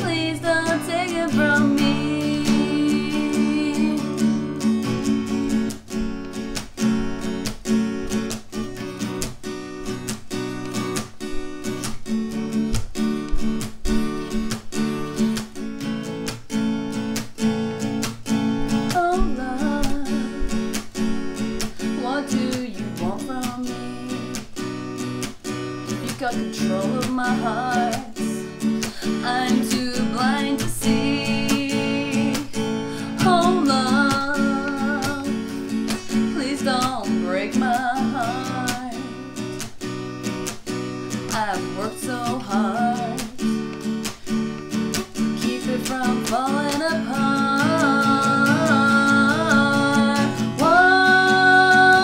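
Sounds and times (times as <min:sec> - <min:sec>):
person singing: 0:00.0 - 0:04.6, 0:18.7 - 0:24.6, 0:25.9 - 0:39.6, 0:41.2 - 0:43.7, 0:45.2 - 0:52.0
acoustic guitar strumming: 0:00.0 - 0:52.0.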